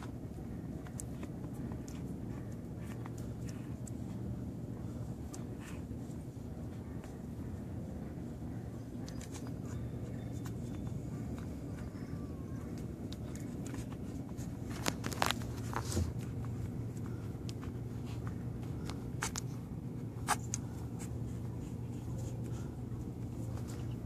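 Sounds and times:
puppies rustling: 0.0 - 24.0
steady low hum: 0.0 - 24.0.

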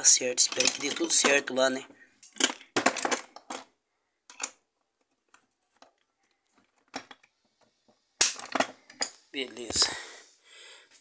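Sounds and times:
metal hand tools clinking: 0.1 - 1.5.

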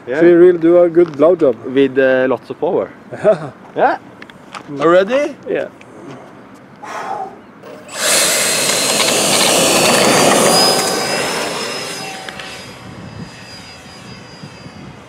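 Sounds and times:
electric ducted fan jet-like rush: 7.6 - 15.0.

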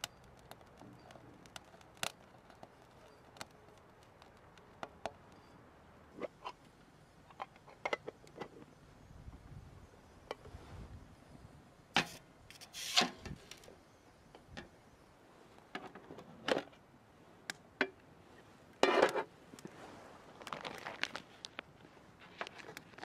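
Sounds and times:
rustling: 18.2 - 23.0.

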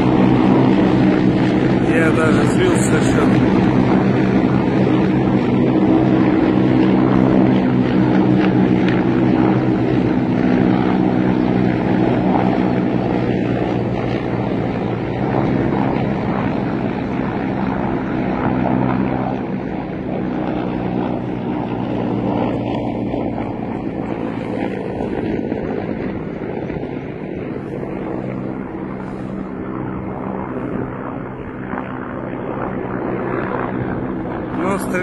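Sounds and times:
helicopters flying overhead: 0.0 - 35.0.

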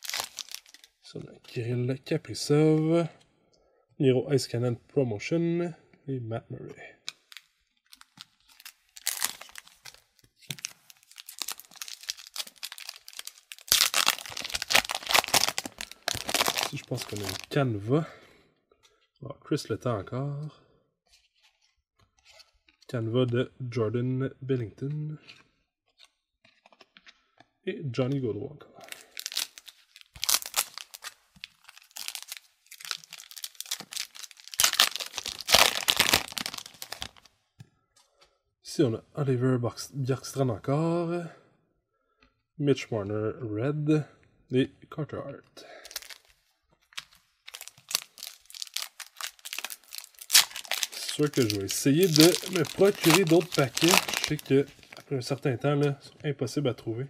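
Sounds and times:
foil wrapper crinkling: 0.0 - 1.0, 7.2 - 17.6, 28.9 - 37.3, 45.8 - 46.4, 47.0 - 55.4.

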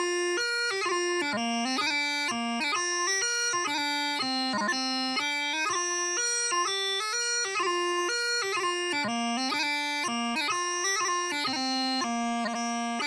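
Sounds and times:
bagpipe chanter melody: 0.0 - 13.0.

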